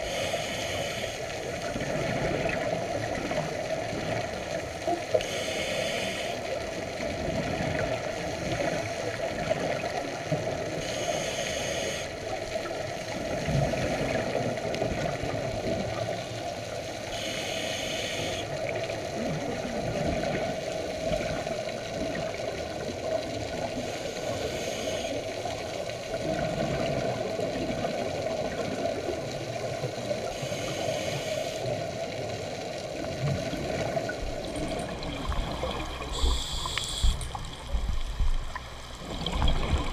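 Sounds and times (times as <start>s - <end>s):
exhaled bubbles: 33.0s - 39.9s
underwater regulator breathing rush: 34.5s - 37.9s.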